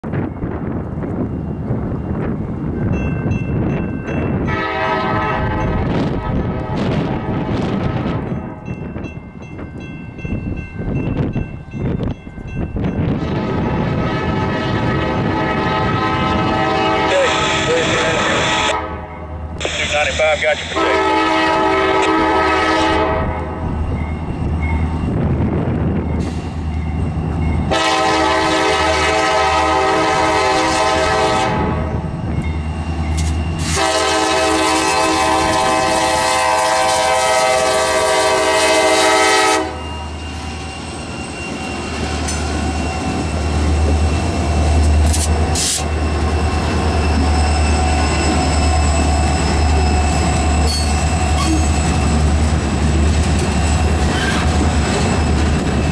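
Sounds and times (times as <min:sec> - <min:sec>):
locomotive air horn blasts: 0:04.4 - 0:08.0, 0:13.3 - 0:19.9, 0:20.7 - 0:23.6, 0:27.7 - 0:32.0, 0:33.6 - 0:39.9
diesel engines rumbling: 0:15.9 - 0:22.7
train wheels clicking: 0:32.4 - 0:33.8, 0:40.3 - 0:55.9.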